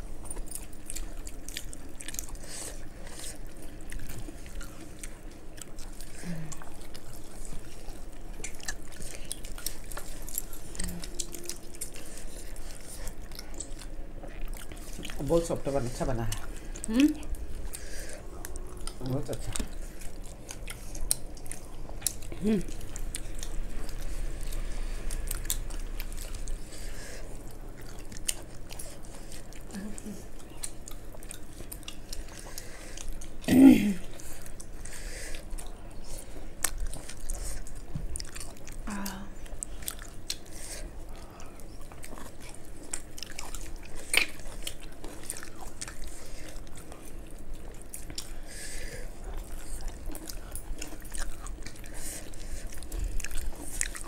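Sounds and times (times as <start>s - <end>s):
chewing and wet mouth clicks: 0.2s - 15.4s, 18.4s - 26.7s, 27.4s - 33.4s, 39.4s - 48.4s, 49.2s - 54.0s
hum-like vocal sound: 22.2s - 27.3s, 38.8s - 39.5s.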